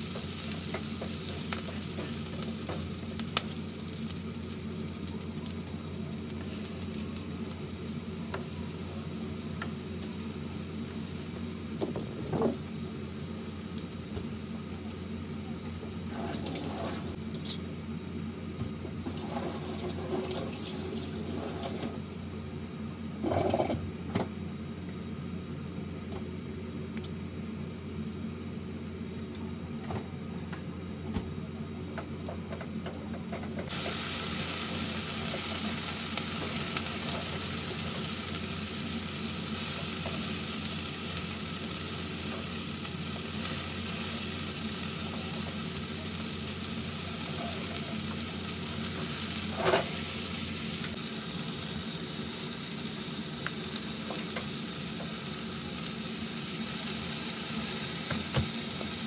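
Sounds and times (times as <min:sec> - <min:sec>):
vegetables sizzling in a frying pan: 0:00.0 - 0:29.7, 0:31.3 - 0:59.0
spatula scraping a pan: 0:19.1 - 0:20.5.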